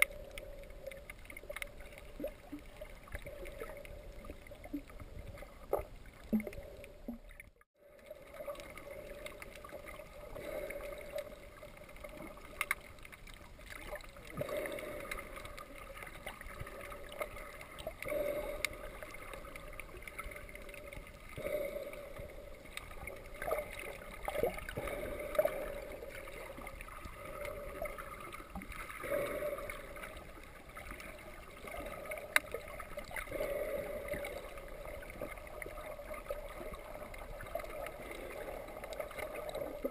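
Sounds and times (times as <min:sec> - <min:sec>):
faint clicks: 0:00.0 - 0:07.6, 0:11.1 - 0:14.1, 0:22.1 - 0:28.9
exhaled bubbles: 0:00.0 - 0:39.9
diver breathing through regulator: 0:18.0 - 0:19.5, 0:20.2 - 0:22.6, 0:33.2 - 0:35.3.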